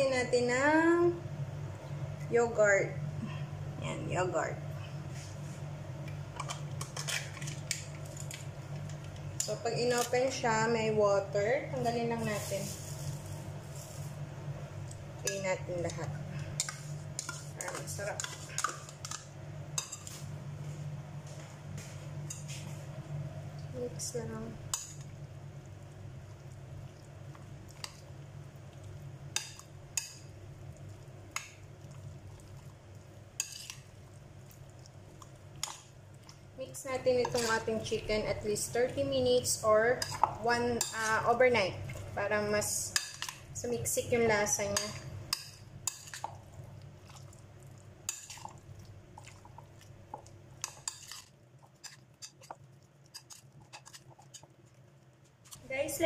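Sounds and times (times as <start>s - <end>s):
steady low hum: 0.0s - 56.0s
utensil scraping a bowl: 37.2s - 37.6s.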